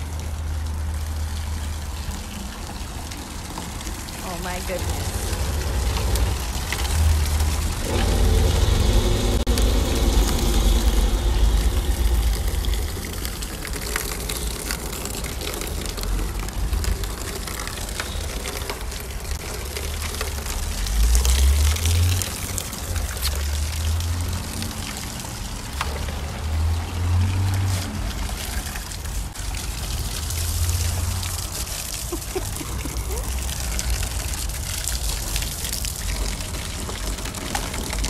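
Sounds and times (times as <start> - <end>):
water splashing and trickling: 0.0 - 38.0.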